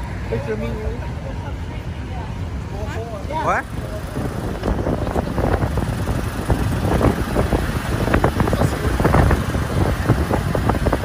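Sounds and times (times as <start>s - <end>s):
road and traffic rumble: 0.0s - 11.0s
wind buffeting microphone: 3.4s - 11.0s.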